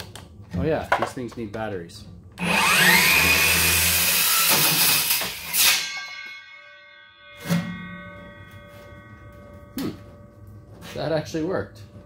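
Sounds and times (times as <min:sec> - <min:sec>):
circular saw cutting metal: 0:02.4 - 0:08.4
metal ringing tones: 0:05.6 - 0:12.0.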